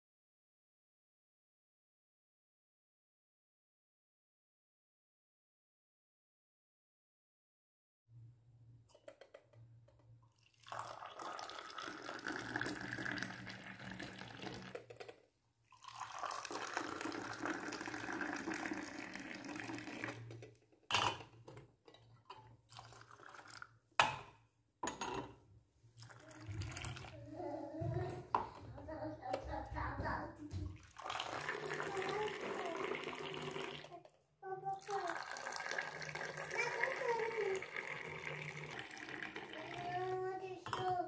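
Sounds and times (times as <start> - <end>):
tea pouring into glass: 10.3 - 14.8, 15.7 - 20.4, 22.7 - 23.7, 26.0 - 27.2, 30.8 - 34.0, 34.7 - 41.0.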